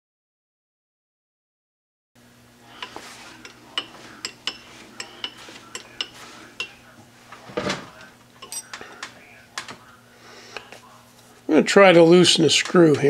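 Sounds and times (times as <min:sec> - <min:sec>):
metal clicks and clinks: 0:08.4 - 0:08.8.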